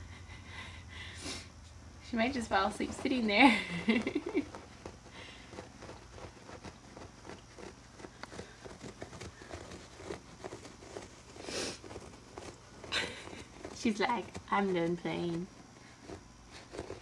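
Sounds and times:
short breathy hiss: 1.0s - 1.5s, 11.4s - 11.9s
fingertips scratching carpet: 2.2s - 17.0s.

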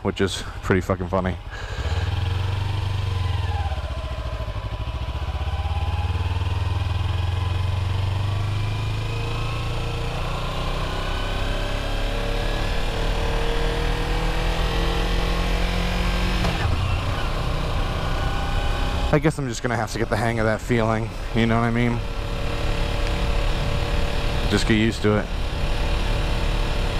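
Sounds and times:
motorcycle engine pulling away: 1.5s - 19.2s.

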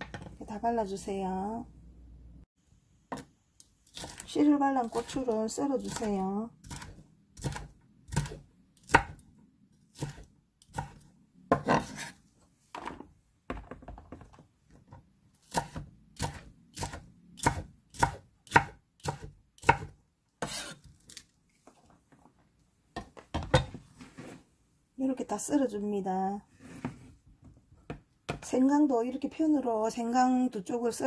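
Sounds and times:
knife chopping on wooden board: 5.9s - 9.2s, 9.9s - 12.1s, 15.5s - 20.8s.

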